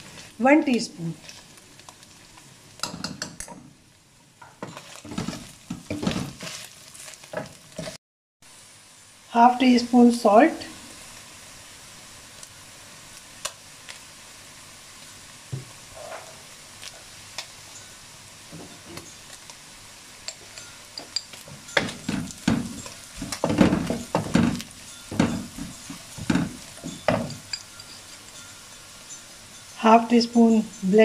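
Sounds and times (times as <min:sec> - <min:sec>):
meat sizzling faintly: 0:00.0 - 0:03.4, 0:04.7 - 0:31.0
wooden spatula scraping pan: 0:04.6 - 0:08.0, 0:21.6 - 0:28.2.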